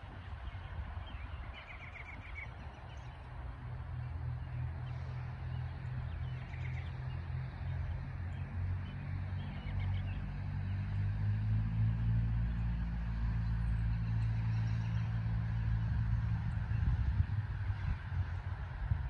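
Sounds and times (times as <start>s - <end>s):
low engine drone: 0.0s - 19.0s.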